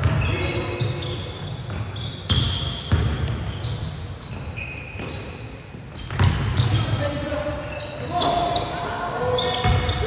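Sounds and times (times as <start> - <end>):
sneakers squeaking on floor: 0.0 - 10.0
basketball bouncing: 1.7 - 3.5, 6.0 - 6.8, 9.6 - 10.0.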